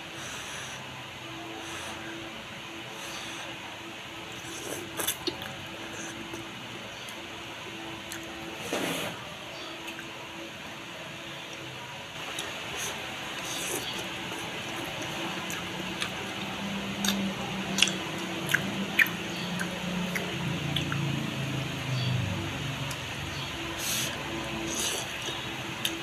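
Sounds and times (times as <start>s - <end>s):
person chewing and slurping noodles: 4.3s - 6.4s, 12.2s - 22.2s, 22.8s - 26.0s
wet mouth sounds: 17.0s - 21.2s.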